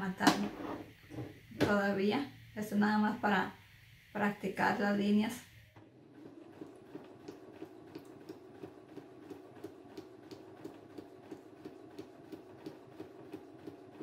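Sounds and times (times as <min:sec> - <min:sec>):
sewing machine stitching: 0:05.8 - 0:14.0.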